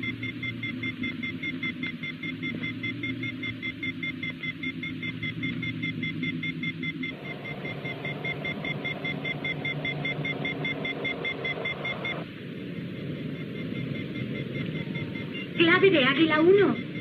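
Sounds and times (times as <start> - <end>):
low hum: 0.0 - 17.0
rapid electronic beeping: 0.0 - 17.0
spacecraft engines rushing drone: 7.0 - 17.0.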